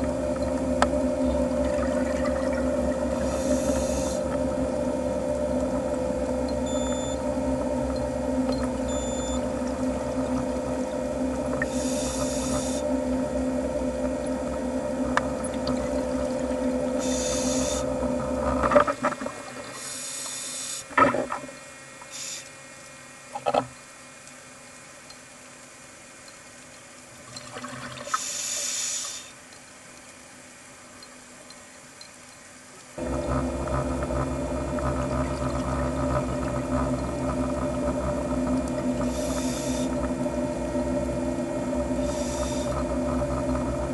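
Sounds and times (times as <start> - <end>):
underwater droning hum: 0.0 - 43.9
water noise: 0.0 - 43.9
short bursts of high hiss: 22.1 - 22.6, 28.1 - 29.4.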